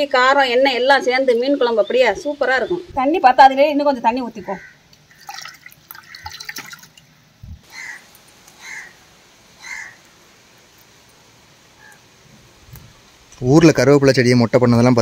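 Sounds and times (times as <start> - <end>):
crow cawing: 4.4 - 6.7, 7.6 - 10.1
water splashing into a pot: 5.0 - 7.1.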